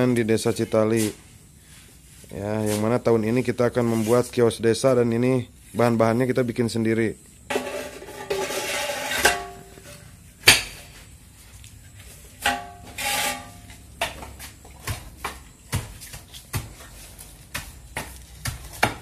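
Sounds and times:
tools scraping in metal basin: 0:07.5 - 0:10.9, 0:12.4 - 0:13.9
sharp knocks on mould: 0:17.5 - 0:19.0.

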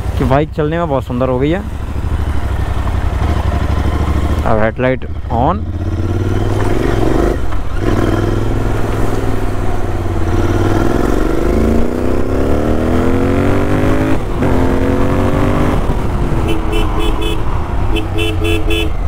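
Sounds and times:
motorcycle engine accelerating: 0:01.4 - 0:19.0.

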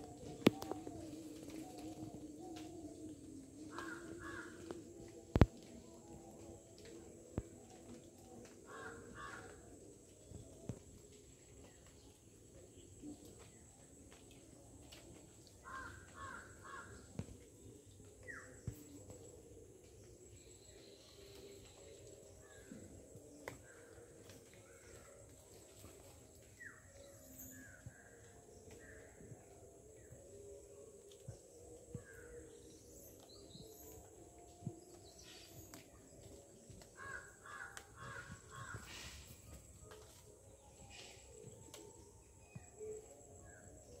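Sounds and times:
outdoor ambience: 0:00.0 - 0:44.0
crow cawing: 0:03.8 - 0:04.6, 0:08.7 - 0:09.5, 0:15.6 - 0:16.9, 0:37.0 - 0:39.1.

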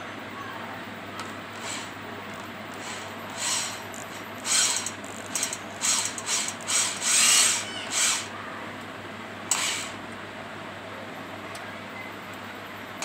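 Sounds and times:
electric drill whirring: 0:01.6 - 0:02.0, 0:02.7 - 0:08.3, 0:09.5 - 0:10.0.

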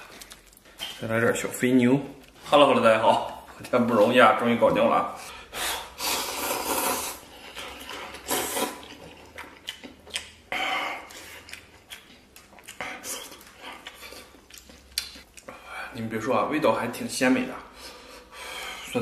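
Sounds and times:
person slurping noodles: 0:05.7 - 0:09.4
chewing: 0:06.4 - 0:15.6.

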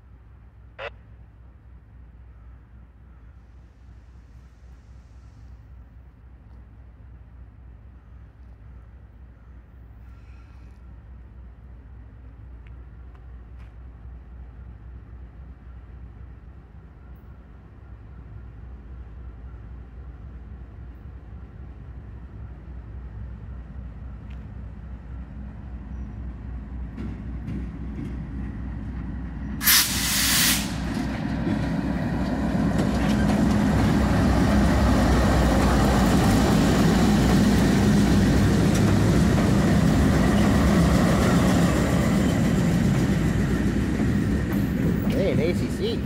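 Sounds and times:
diesel locomotive engine drone: 0:00.0 - 0:46.0
train wheels on rails: 0:20.8 - 0:46.0
loud air hiss: 0:29.6 - 0:30.9.

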